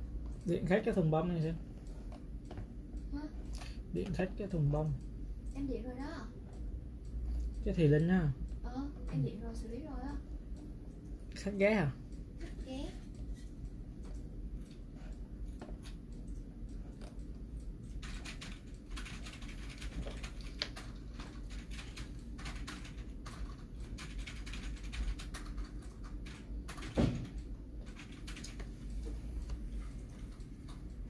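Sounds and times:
steady low hum: 0.0s - 31.0s
keyboard typing clicks: 15.5s - 28.7s.

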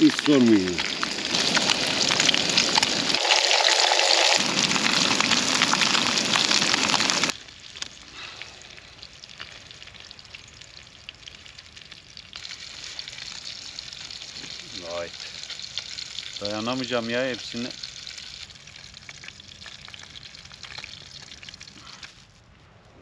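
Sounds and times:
fish sizzling in hot oil: 0.0s - 22.3s.

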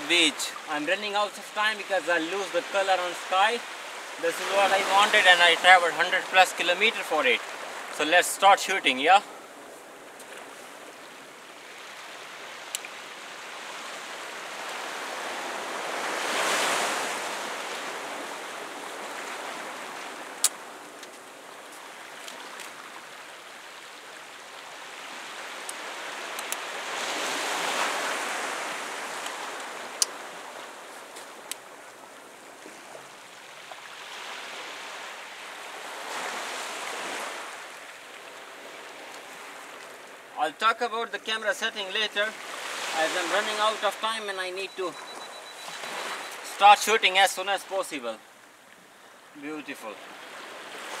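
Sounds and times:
sea waves washing ashore: 0.0s - 51.0s
sharp clicks: 26.4s - 26.6s.

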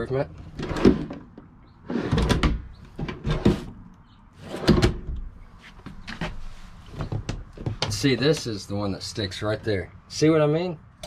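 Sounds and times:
drawers sliding on metal slides: 0.5s - 1.2s, 1.8s - 3.8s, 4.4s - 5.0s.

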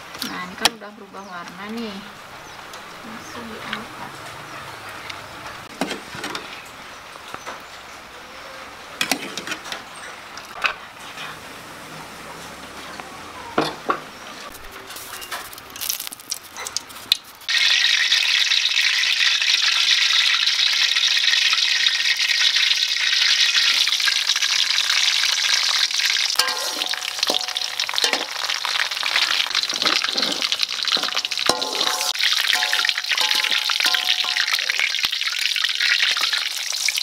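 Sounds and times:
pans and utensils clinking: 9.0s - 9.8s, 13.6s - 17.0s, 26.3s - 36.5s
garlic sizzling in hot oil: 14.9s - 37.0s
stirring knocks: 29.5s - 35.0s.

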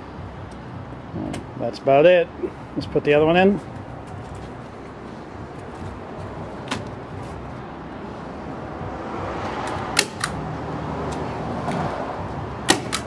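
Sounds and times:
staple gun firing: 12.7s - 13.0s.

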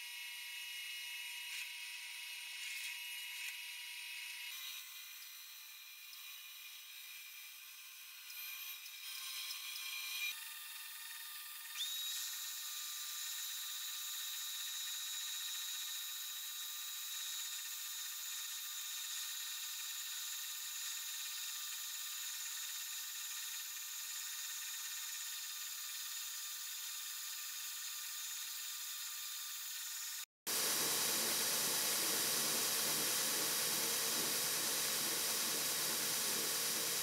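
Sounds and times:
belt grinder whining: 28.3s - 37.0s.

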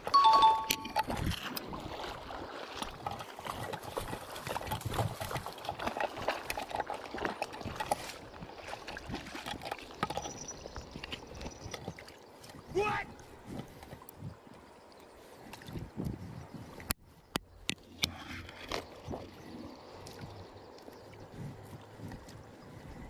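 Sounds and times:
stream water trickling: 0.0s - 23.0s
stones clicking in water: 2.8s - 12.1s.

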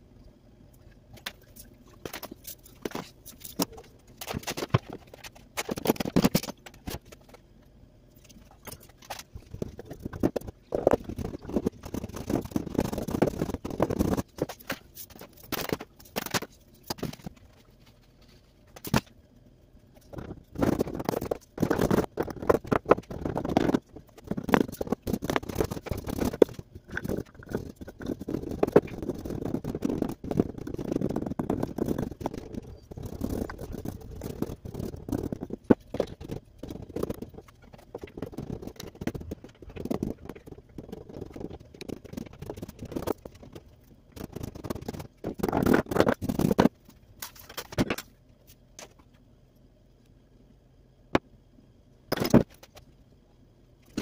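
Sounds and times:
low hum: 0.0s - 54.0s
gritty scraping: 8.2s - 19.1s, 20.0s - 48.1s.

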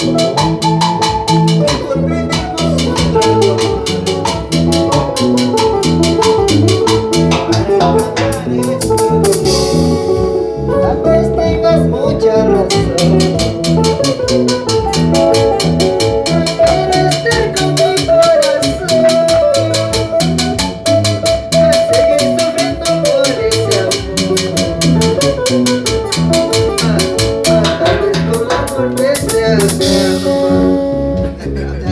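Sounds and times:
bass guitar: 0.0s - 31.9s
drums: 0.0s - 31.9s
electric guitar: 0.0s - 31.9s
man singing into a microphone: 1.6s - 4.7s, 10.6s - 13.5s, 16.1s - 31.9s.

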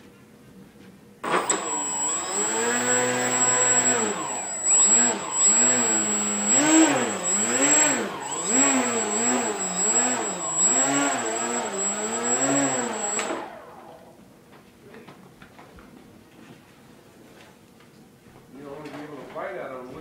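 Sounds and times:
rc hovercraft motor whining: 1.2s - 14.1s
thin high tone: 2.8s - 13.3s.

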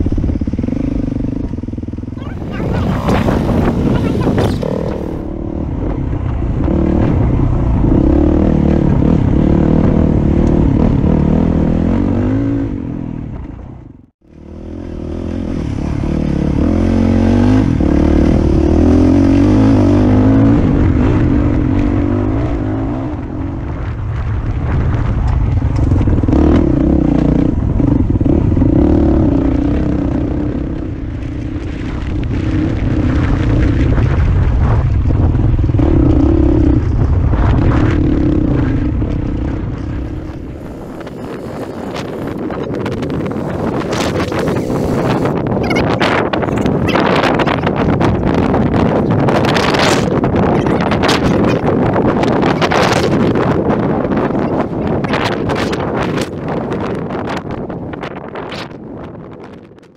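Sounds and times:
dirt bike engine revving: 0.0s - 5.6s, 14.3s - 22.9s, 35.5s - 57.3s.

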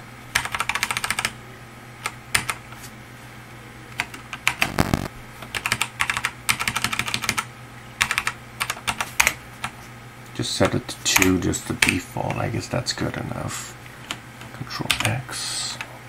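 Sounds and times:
computer keyboard clicking: 0.3s - 1.3s, 2.0s - 2.6s, 3.9s - 9.4s, 14.9s - 15.2s.

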